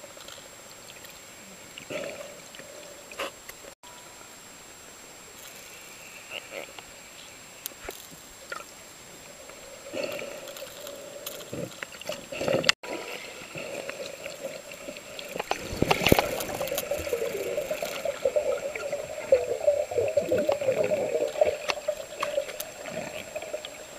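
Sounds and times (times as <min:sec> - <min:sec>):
water gurgling and sloshing: 0:08.4 - 0:23.9.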